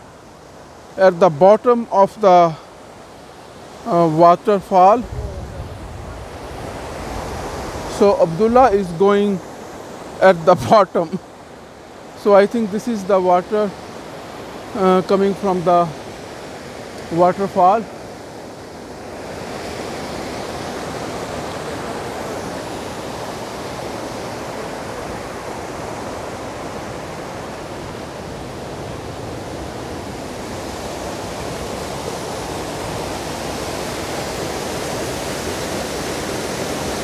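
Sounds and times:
stream tumbling over boulders: 3.9 - 9.4.

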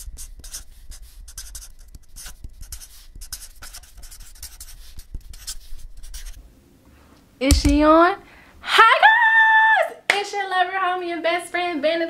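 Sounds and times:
pen scratching on paper: 0.0 - 6.4.

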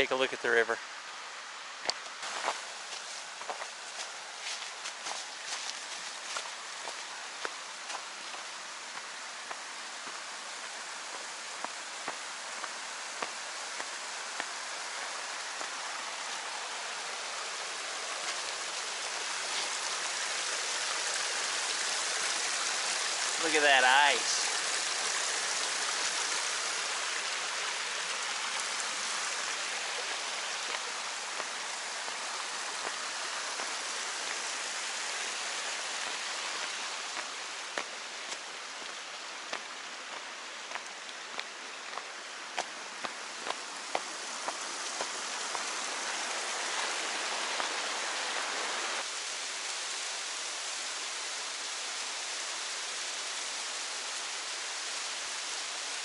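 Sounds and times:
creek rushing over rocks: 0.0 - 56.0
footsteps on leafy dirt trail: 1.8 - 10.3, 28.9 - 48.3.

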